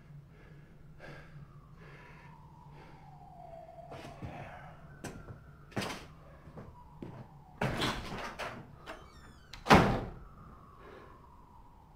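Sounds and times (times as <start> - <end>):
door closing with a bang: 7.6 - 10.2.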